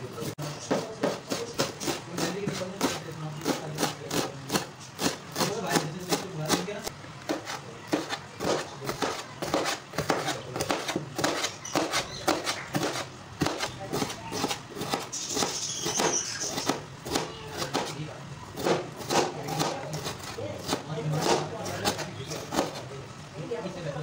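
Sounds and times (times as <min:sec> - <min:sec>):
knife slicing on wooden board: 0:07.3 - 0:18.0.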